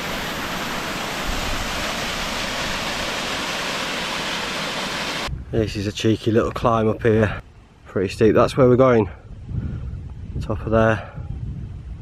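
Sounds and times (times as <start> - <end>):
stream rushing over rocks: 0.0 - 5.3.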